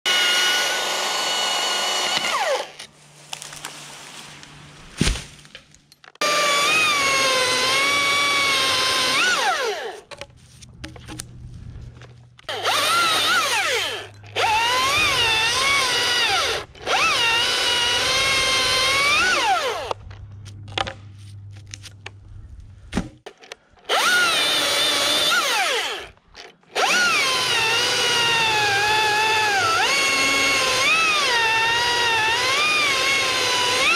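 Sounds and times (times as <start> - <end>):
battery chainsaw cutting wood: 0.1 - 2.8, 6.2 - 10.0, 12.5 - 20.0, 23.9 - 33.9.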